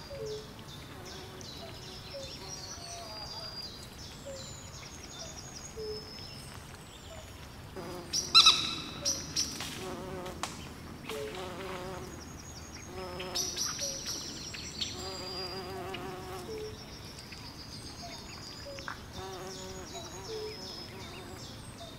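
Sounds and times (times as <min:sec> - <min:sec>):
small birds chirping: 0:00.0 - 0:21.9
fly buzzing: 0:07.8 - 0:08.6, 0:09.6 - 0:10.5, 0:11.1 - 0:12.1, 0:12.9 - 0:13.5, 0:15.0 - 0:16.6, 0:19.2 - 0:21.4.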